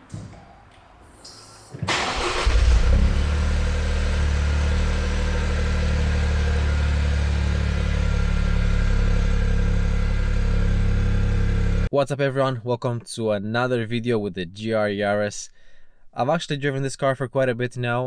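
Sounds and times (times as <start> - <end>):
car engine starting and idling: 1.8 - 11.9.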